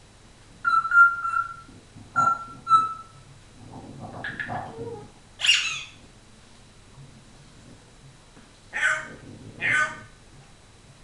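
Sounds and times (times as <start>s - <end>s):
parrot chattering: 0.6s - 3.2s, 4.3s - 6.0s, 8.7s - 10.1s
parrot squawk: 0.6s - 3.2s, 5.4s - 6.0s, 8.7s - 10.1s
parrot whistling: 0.6s - 3.2s, 5.4s - 6.0s.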